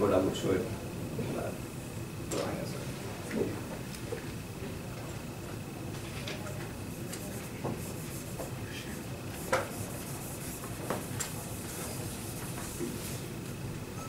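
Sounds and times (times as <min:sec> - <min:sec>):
rubbing on a whiteboard: 0:07.2 - 0:13.3
faint high whine: 0:13.8 - 0:14.0.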